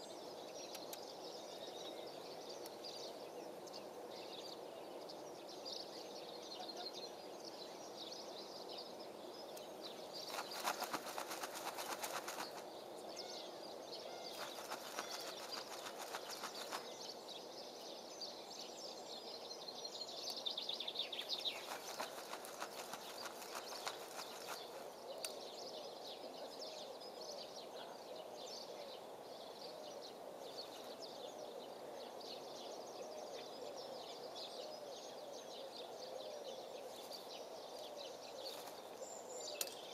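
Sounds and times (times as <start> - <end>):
small birds chirping: 0.0 - 39.9
rapid crackling or rustling: 10.2 - 12.6, 14.4 - 16.9, 21.4 - 24.8.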